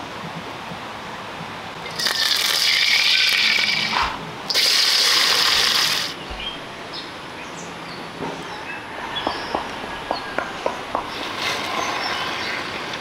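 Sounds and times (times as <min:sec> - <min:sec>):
hot oil sizzling in a wok: 0:01.9 - 0:06.1.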